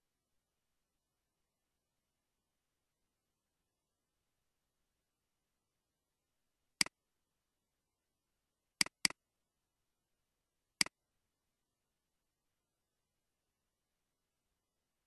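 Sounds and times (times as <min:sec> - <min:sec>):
computer mouse clicks: 0:08.8 - 0:09.2.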